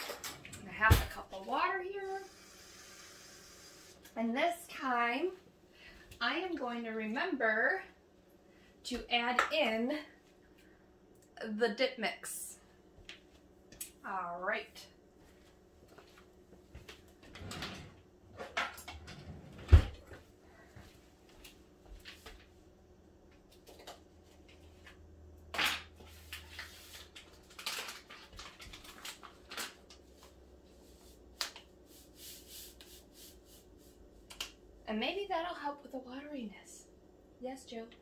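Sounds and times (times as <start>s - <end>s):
containers and utensils clattering: 0.0s - 0.5s
faint steady hum: 0.0s - 38.0s
paper packet rustling: 26.2s - 30.4s.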